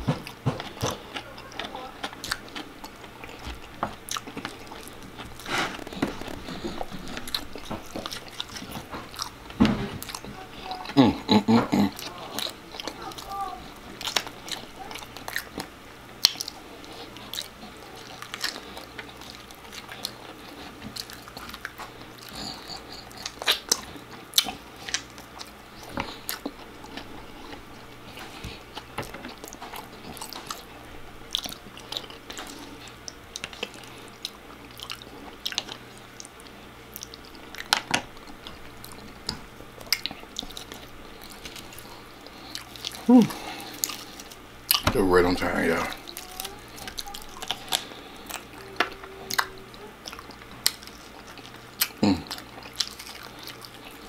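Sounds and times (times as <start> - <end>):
person chewing and biting food: 0.0 - 45.0, 45.8 - 54.0.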